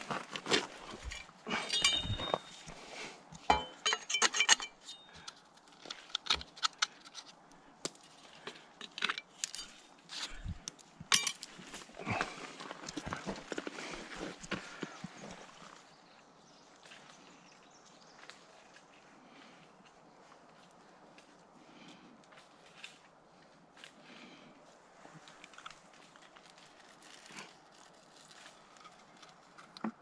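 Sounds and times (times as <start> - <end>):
metallic clinks of hand tools: 1.0 - 2.7, 3.5 - 5.2.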